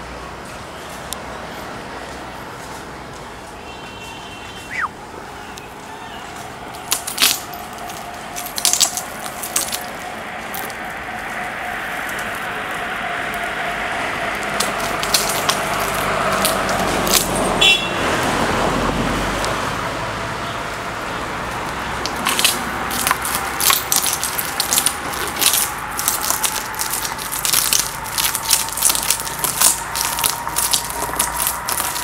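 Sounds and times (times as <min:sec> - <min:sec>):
glass crunching under tyres: 0:06.7 - 0:18.3, 0:21.5 - 0:32.0.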